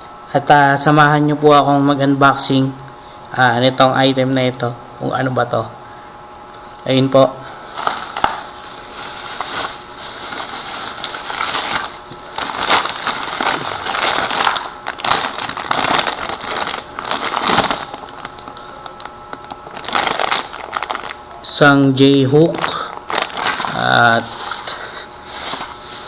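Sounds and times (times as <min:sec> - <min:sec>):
plastic bags rustling: 0:07.6 - 0:21.3, 0:22.4 - 0:26.0.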